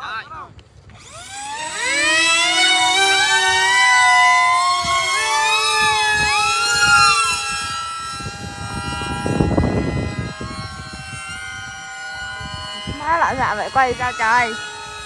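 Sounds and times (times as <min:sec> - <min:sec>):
electric model jet motors whining: 0:00.8 - 0:15.0.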